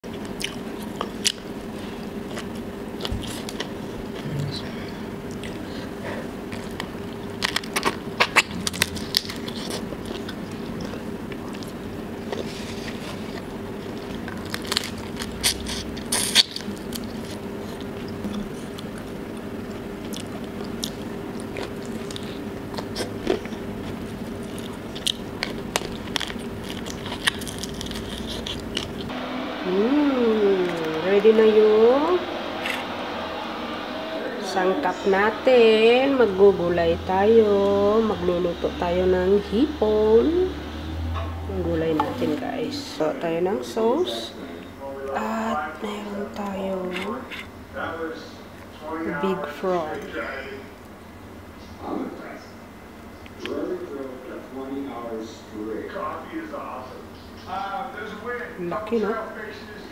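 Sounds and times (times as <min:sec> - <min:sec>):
steady low hum: 0:00.0 - 0:59.9
chewing with sharp crunches: 0:00.1 - 0:29.1.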